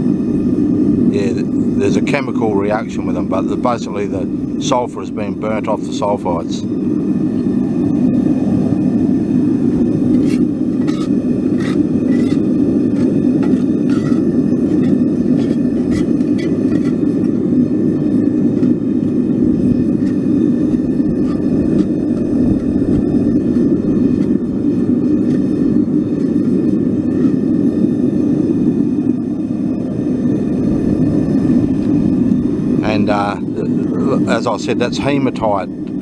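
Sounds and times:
gas burner rushing: 0.0s - 36.0s
scraping and tapping in a pan: 10.1s - 12.4s, 13.0s - 17.0s.

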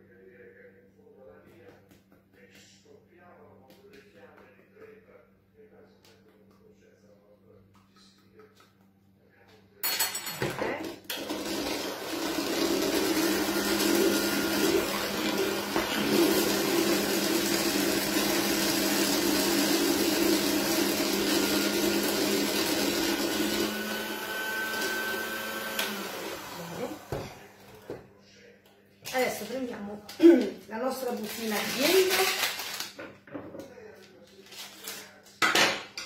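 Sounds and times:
electric hand mixer whisking batter: 11.1s - 27.5s.

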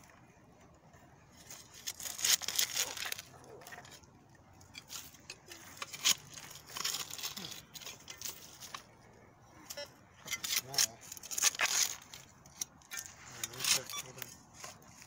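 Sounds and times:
hand shovel digging into soil: 1.4s - 4.0s, 4.7s - 8.9s, 10.2s - 15.0s.

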